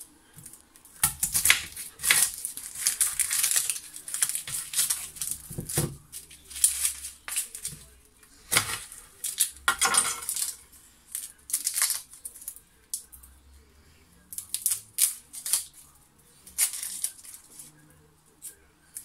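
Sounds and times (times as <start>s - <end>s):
kitchen utensils and dishes clattering: 1.1s - 10.6s.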